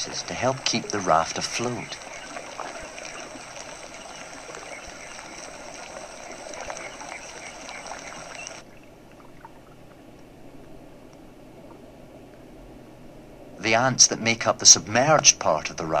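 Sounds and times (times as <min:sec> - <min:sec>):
water trickling: 0:00.0 - 0:10.8
low hiss: 0:00.0 - 0:16.0
faint small ticks: 0:00.9 - 0:08.7.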